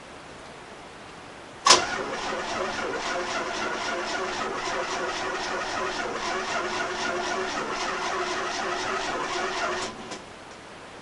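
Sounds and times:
engine exhaust pulsing: 1.7s - 10.2s.

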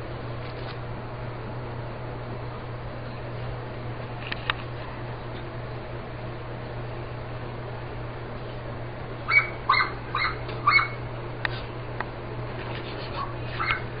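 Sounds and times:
puppy yipping: 9.3s - 11.0s, 13.2s - 13.9s.

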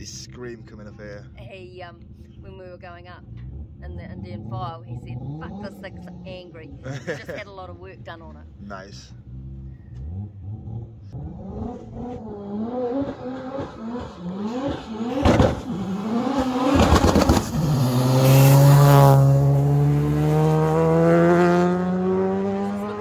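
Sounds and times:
race car accelerating hard: 9.1s - 23.0s.

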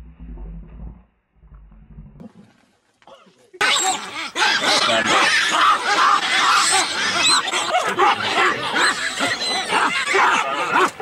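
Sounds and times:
baboons barking and calling: 3.6s - 11.0s.

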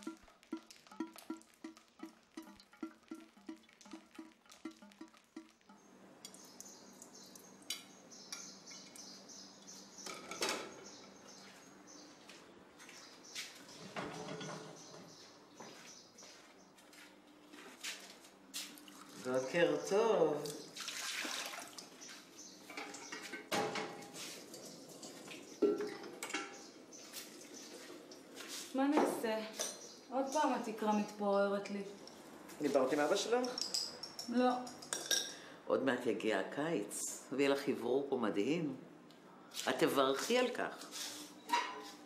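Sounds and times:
dishes clinking and clattering: 0.0s - 6.4s, 10.0s - 11.0s, 13.8s - 15.0s, 22.7s - 26.7s, 33.4s - 35.4s, 41.5s - 42.0s
faint water sounds: 0.0s - 9.8s, 18.6s - 23.4s.

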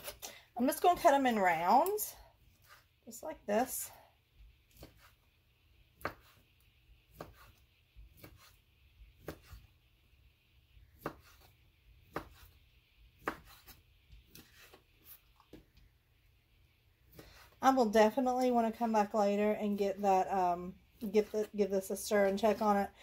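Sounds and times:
knife slicing sausage on board: 2.5s - 3.0s, 4.7s - 5.3s, 6.0s - 6.5s, 7.1s - 9.7s, 11.0s - 12.6s, 13.2s - 15.6s.

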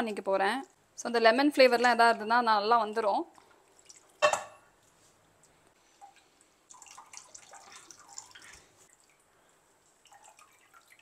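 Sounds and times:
water dripping into bowl: 6.0s - 9.2s, 10.0s - 11.0s.

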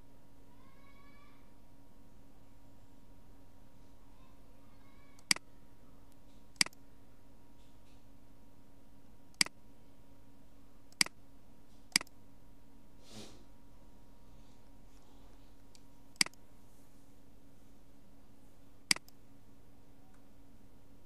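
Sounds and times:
faint steady hum: 0.0s - 21.0s
mouse button clicks: 11.9s - 12.1s.

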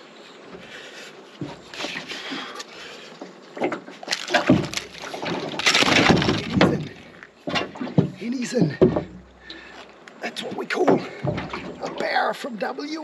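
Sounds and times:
water splashing: 3.6s - 12.8s
knocks against boat hull: 6.0s - 9.2s.

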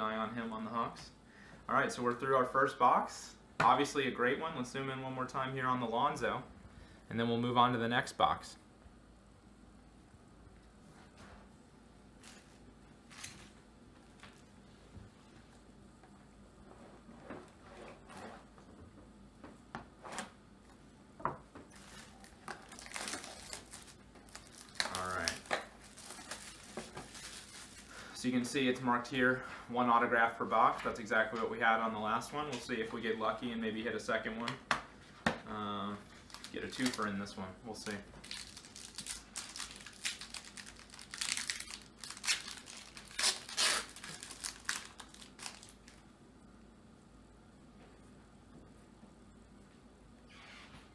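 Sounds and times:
wrapper tearing and crinkling: 12.2s - 13.5s, 21.7s - 28.0s, 36.1s - 37.1s, 37.8s - 46.0s
cards rustling: 21.7s - 28.0s, 36.1s - 46.0s.

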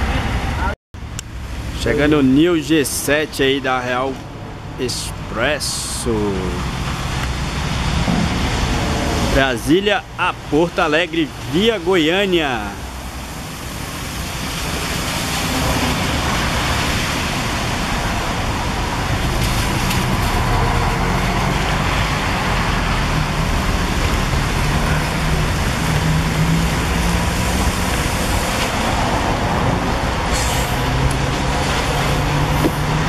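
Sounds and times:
traffic noise: 0.0s - 33.0s
brief hiss: 30.3s - 30.8s.

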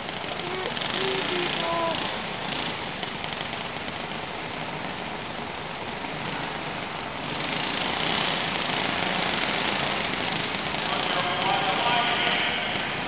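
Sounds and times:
small kart engines buzzing: 0.0s - 13.0s.

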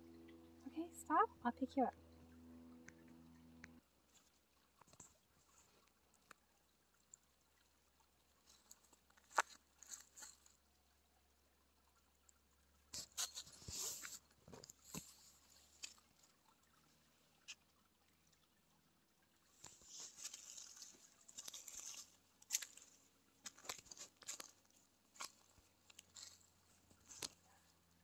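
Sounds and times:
footsteps on dry leaves: 19.9s - 24.5s.

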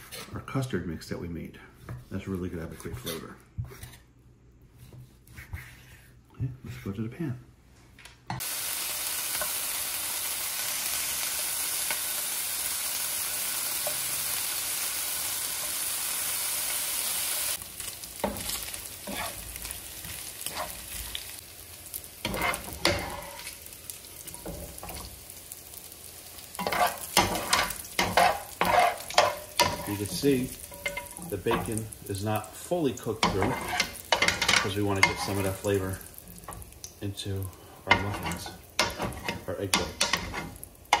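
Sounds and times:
wooden spatula scraping and knocking: 0.0s - 0.6s, 1.8s - 7.2s, 18.2s - 21.2s, 22.2s - 23.5s, 26.6s - 31.8s, 33.1s - 35.8s, 37.8s - 41.0s
bacon sizzling in a frying pan: 8.4s - 41.0s.

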